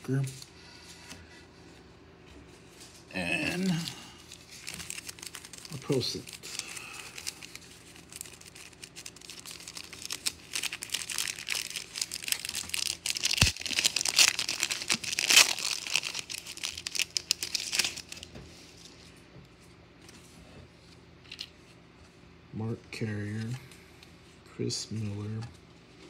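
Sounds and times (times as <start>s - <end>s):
wrapper crinkling and tearing: 3.6s - 18.3s.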